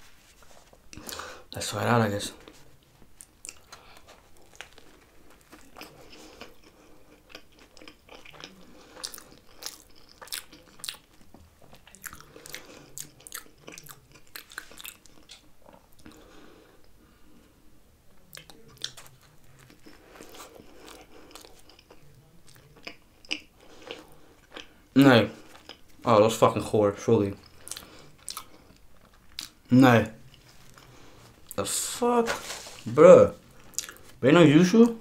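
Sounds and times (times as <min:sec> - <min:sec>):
person chewing wet smacks: 0:03.2 - 0:16.2, 0:18.3 - 0:24.8, 0:25.4 - 0:26.0, 0:27.4 - 0:29.6, 0:33.6 - 0:34.2.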